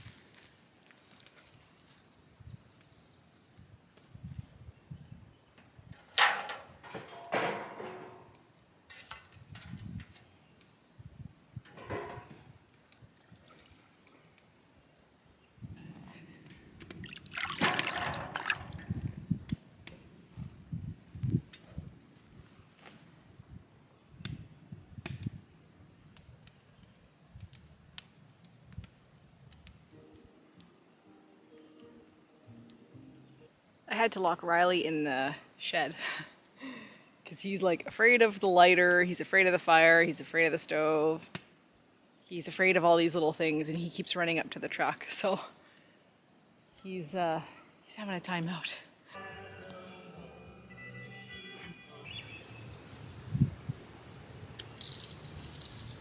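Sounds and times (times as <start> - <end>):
wood fire crackling: 0.0 - 4.6, 15.6 - 23.2, 24.2 - 32.0, 52.1 - 56.0
metal pail clanking on barrel: 17.5 - 18.8
soft music: 29.9 - 33.8, 49.1 - 52.8.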